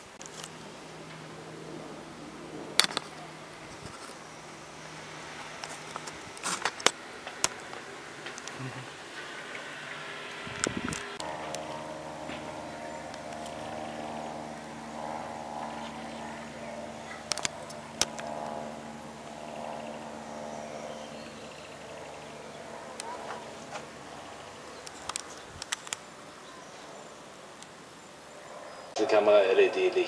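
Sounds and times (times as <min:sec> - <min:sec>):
light aircraft engine drone: 0:00.0 - 0:30.0
sharp clicks: 0:17.3 - 0:18.6, 0:24.8 - 0:26.1.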